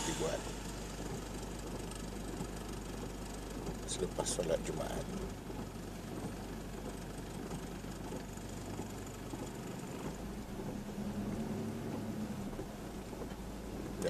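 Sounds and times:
rain hissing: 0.0 - 3.9
vehicle engine idling: 0.0 - 14.0.

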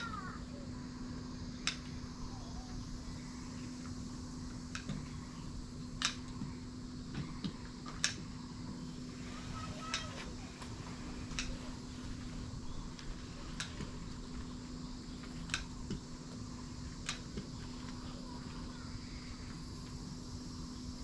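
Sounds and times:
constant low hum: 0.0 - 21.0
sharp irregular ticks: 1.5 - 2.3, 2.9 - 8.8, 9.6 - 11.8.

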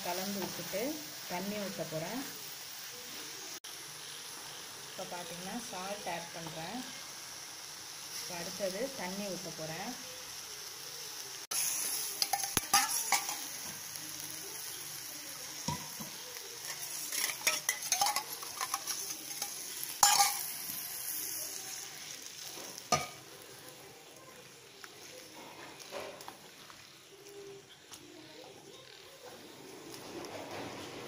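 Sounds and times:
food sizzling in pot: 0.0 - 31.0
spatula scraping and stirring: 11.6 - 13.7, 15.6 - 23.2, 24.8 - 28.0
water hitting hot pan: 11.9 - 14.6, 15.6 - 20.9, 22.5 - 23.4.

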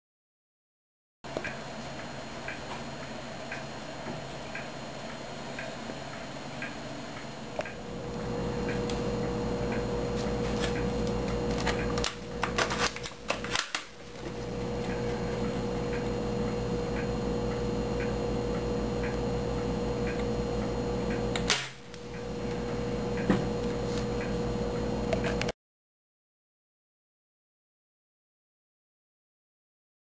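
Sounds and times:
steady electrical hum: 1.3 - 25.5.

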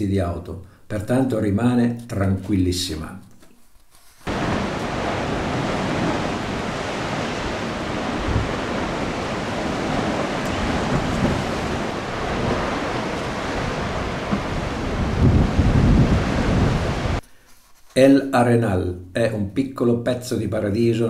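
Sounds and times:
surf washing against rocks: 4.3 - 17.2
wind buffeting microphone: 4.3 - 17.2.

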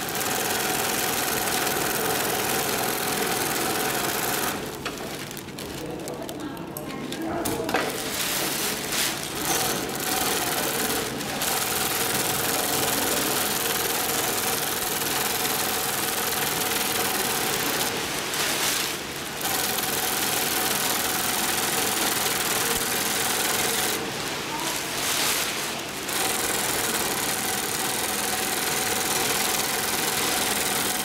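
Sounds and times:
sewing machine stitching: 0.0 - 4.8, 9.4 - 18.1, 18.7 - 24.2, 26.0 - 31.0.

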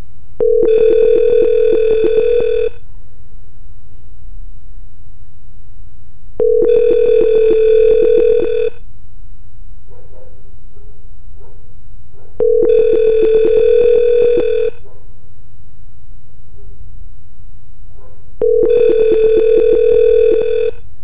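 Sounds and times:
pulsing electronic phone ring: 0.4 - 2.8, 6.4 - 8.8, 12.4 - 14.8, 18.4 - 20.8.

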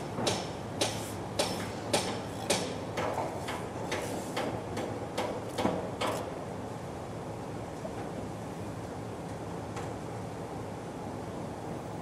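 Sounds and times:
sharp knocks in echoing room: 0.0 - 6.3
steady background hum: 0.0 - 12.0.

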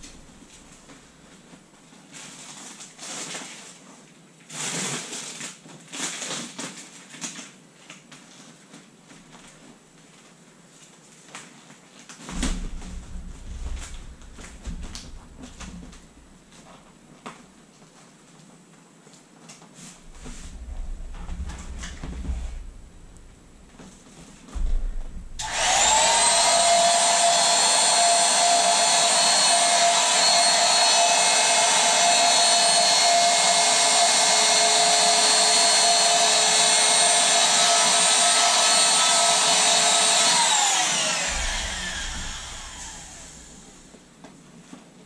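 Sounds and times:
electric air pump whirring: 24.5 - 44.0.

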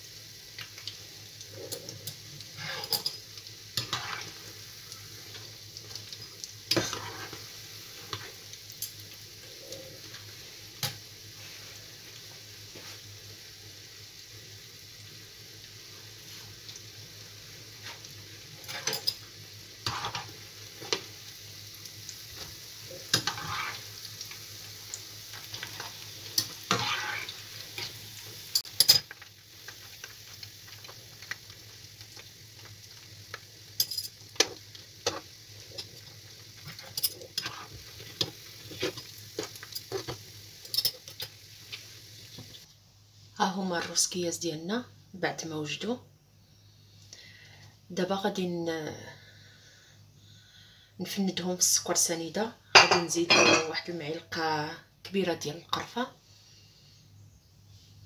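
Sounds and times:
dough sizzling in hot oil: 0.0 - 50.0, 51.1 - 58.0.

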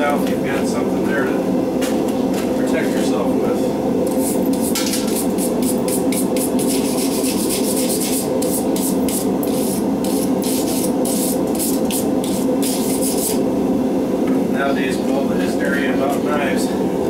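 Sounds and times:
gas forge burner roaring: 0.0 - 17.0
rasping hand strokes: 4.1 - 13.4.

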